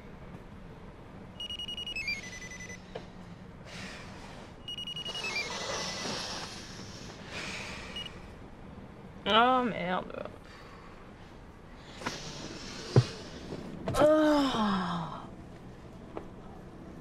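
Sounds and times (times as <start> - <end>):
pulsing electronic alarm beep: 1.4 - 2.8, 4.6 - 6.1, 7.9 - 8.2.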